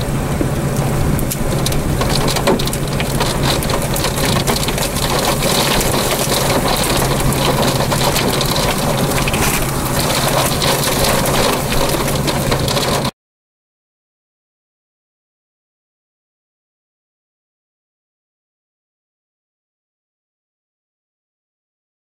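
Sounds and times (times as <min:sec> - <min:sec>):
rain pelting windshield: 0:00.0 - 0:13.1
rushing wind: 0:00.0 - 0:13.1.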